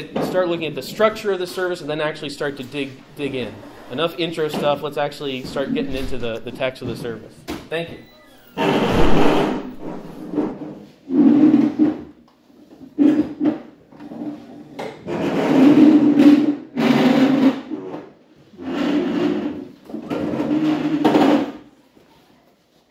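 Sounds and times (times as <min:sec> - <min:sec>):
chairs scraping: 0:00.0 - 0:21.6.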